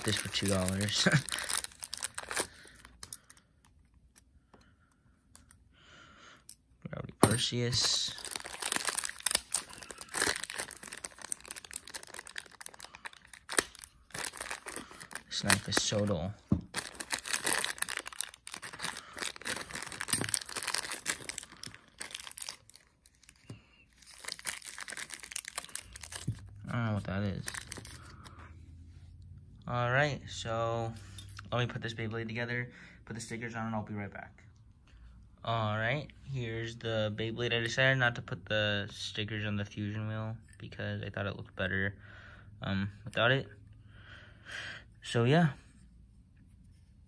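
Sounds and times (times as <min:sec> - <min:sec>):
plastic wrapper tearing and crinkling: 0:00.0 - 0:03.1, 0:07.7 - 0:28.3.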